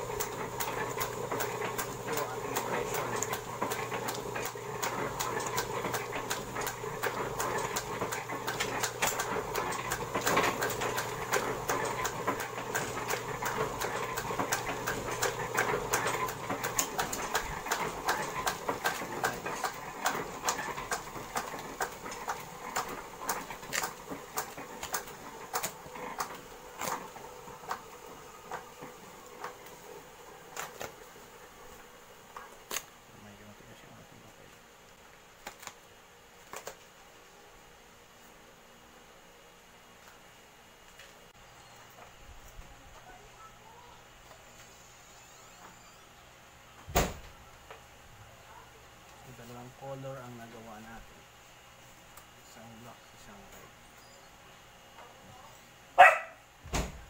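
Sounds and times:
die-cut machine clicking and rattling: 0:00.0 - 0:29.9
low machine hum: 0:00.0 - 0:57.0
card sheets clicking and rustling: 0:35.4 - 0:35.8.

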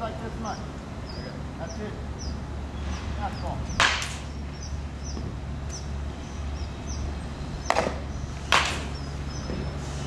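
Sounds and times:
baseball smacking into leather mitt: 0:03.8 - 0:04.2, 0:07.7 - 0:08.9.

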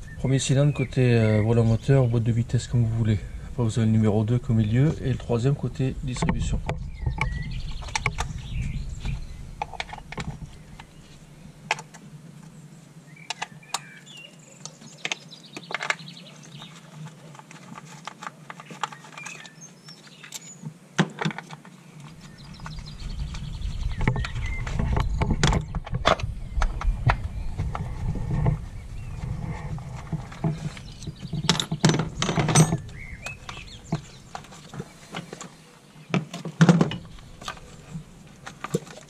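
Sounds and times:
faint bird chirps: 0:32.6 - 0:36.1.

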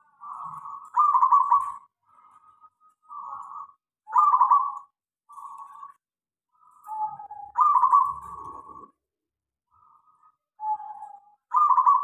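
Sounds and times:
dove cooing: 0:00.0 - 0:02.4, 0:03.1 - 0:05.8, 0:06.6 - 0:09.0, 0:10.6 - 0:12.0.

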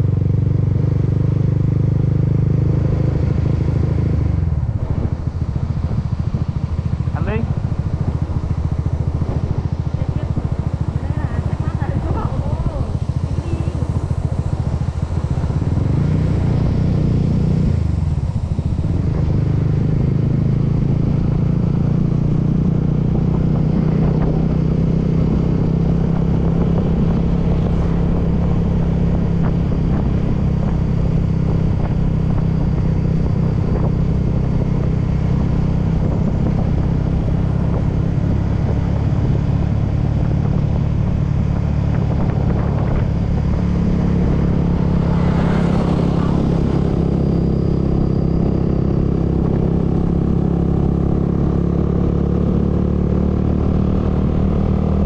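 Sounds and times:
scooter engine running: 0:00.0 - 0:55.0.

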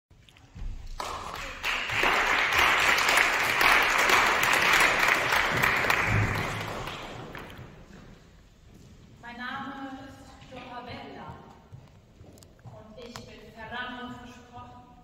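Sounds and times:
audience applauding: 0:00.8 - 0:08.0.

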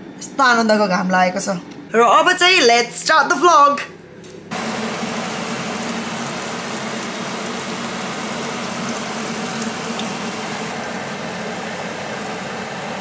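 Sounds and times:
food deep-frying in oil: 0:04.5 - 0:13.0.

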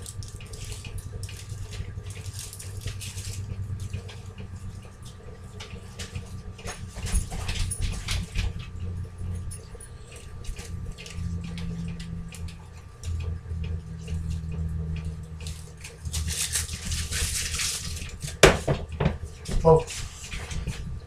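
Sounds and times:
low steady hum: 0:00.0 - 0:21.0.

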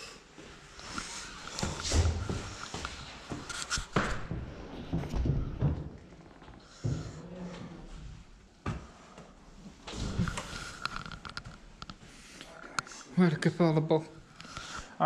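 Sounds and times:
footsteps: 0:00.4 - 0:09.0.

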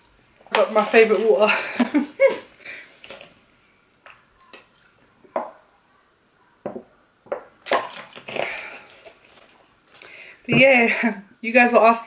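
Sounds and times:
person gulping water: 0:07.4 - 0:10.8.

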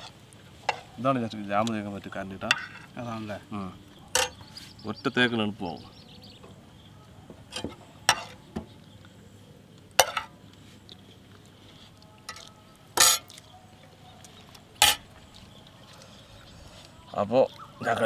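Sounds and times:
spoons clinking against bowl: 0:14.8 - 0:15.1.

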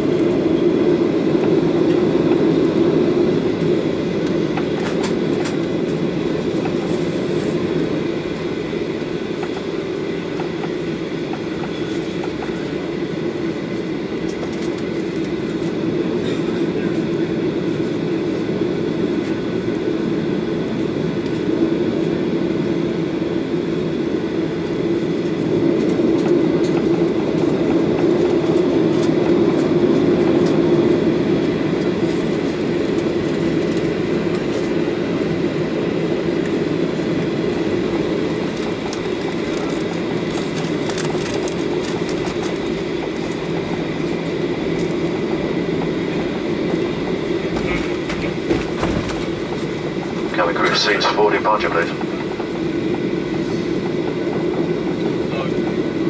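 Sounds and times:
aircraft rolling rumble: 0:00.0 - 0:56.0
jet engines humming with whine: 0:00.0 - 0:56.0.

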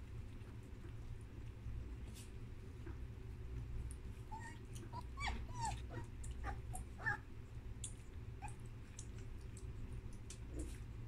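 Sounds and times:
puppies lapping milk: 0:00.0 - 0:11.0
puppies squeaking: 0:04.3 - 0:07.3.

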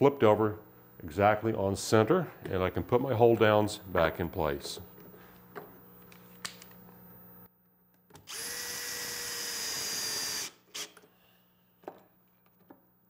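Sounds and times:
cordless drill driving a screw: 0:08.3 - 0:11.0.

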